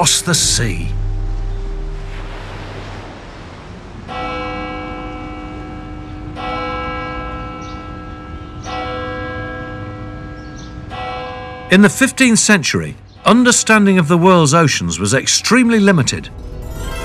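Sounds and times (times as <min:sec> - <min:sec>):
large church bell tolling: 0:04.0 - 0:14.4.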